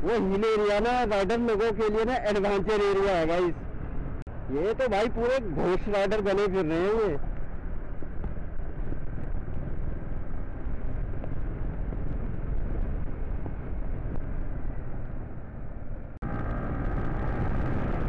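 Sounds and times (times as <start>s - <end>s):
motorcycle engine running: 6.7s - 18.0s
wind buffeting microphone: 6.7s - 18.0s.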